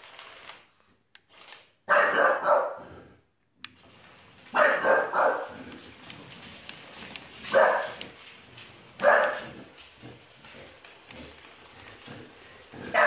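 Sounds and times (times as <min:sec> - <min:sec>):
dog barking: 0:01.9 - 0:03.0, 0:04.5 - 0:05.8, 0:07.4 - 0:08.1, 0:09.0 - 0:09.6, 0:12.8 - 0:13.0.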